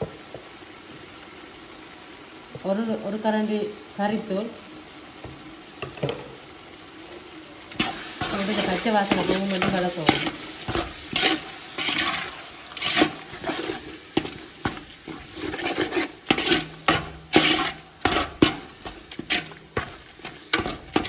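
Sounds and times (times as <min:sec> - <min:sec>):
metal ladle scraping a pot: 0:07.7 - 0:21.0.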